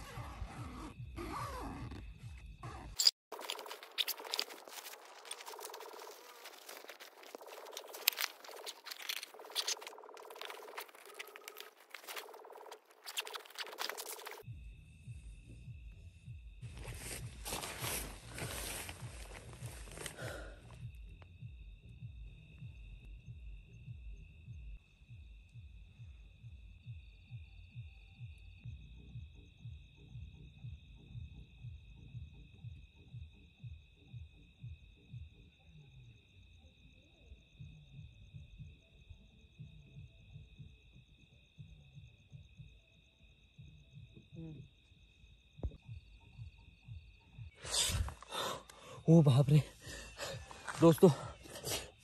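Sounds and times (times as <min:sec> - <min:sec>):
crickets shrill drone: 0:00.0 - 0:52.0
fabric rustling and crinkling: 0:03.3 - 0:14.4, 0:16.8 - 0:20.2
low pulsing beat: 0:14.4 - 0:20.0, 0:20.6 - 0:35.5, 0:45.6 - 0:47.6.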